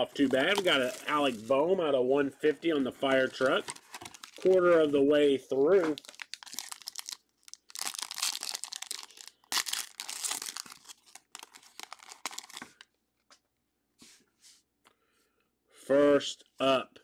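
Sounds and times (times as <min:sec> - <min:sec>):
foil wrapper tearing and crinkling: 0:00.2 - 0:01.5, 0:03.3 - 0:04.7, 0:05.8 - 0:12.8.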